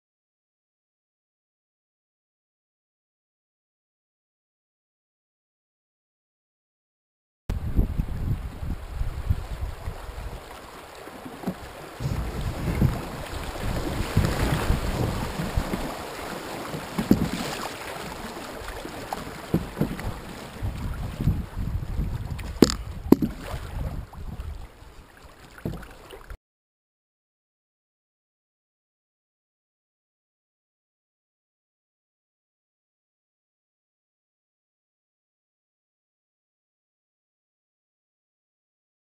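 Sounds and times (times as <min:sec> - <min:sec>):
wind rumbling on microphone: 0:07.5 - 0:10.8, 0:11.4 - 0:25.1
river water rushing and splashing: 0:07.6 - 0:26.4
sharp knocks: 0:22.6 - 0:23.4.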